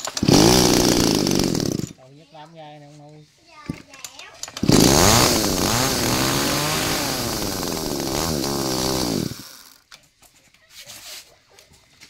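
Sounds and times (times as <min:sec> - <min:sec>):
chainsaw revving: 0:00.0 - 0:02.0, 0:04.4 - 0:09.8.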